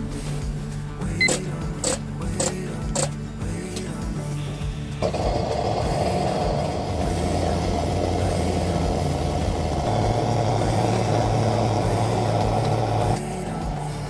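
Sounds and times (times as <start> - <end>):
lantern preheater lighting: 5.0 - 14.0.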